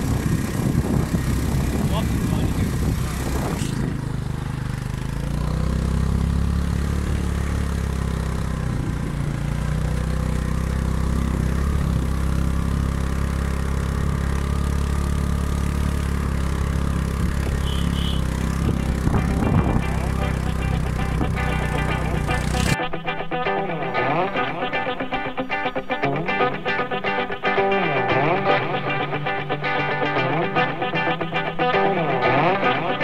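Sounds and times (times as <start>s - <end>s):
motorcycle engine running: 0.0s - 22.8s.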